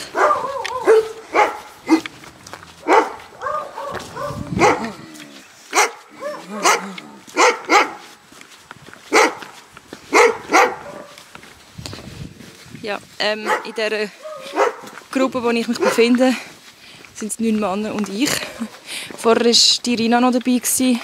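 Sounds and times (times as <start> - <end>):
dogs barking: 0.0 - 8.1, 9.1 - 11.3, 13.4 - 15.0, 15.7 - 16.2.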